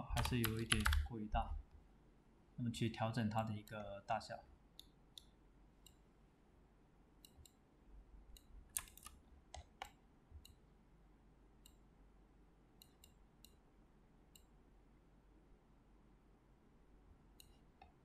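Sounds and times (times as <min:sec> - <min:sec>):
computer mouse clicks: 0:00.2 - 0:01.1, 0:07.2 - 0:07.6, 0:08.3 - 0:10.6, 0:12.8 - 0:13.6, 0:14.3 - 0:14.5, 0:17.4 - 0:18.0.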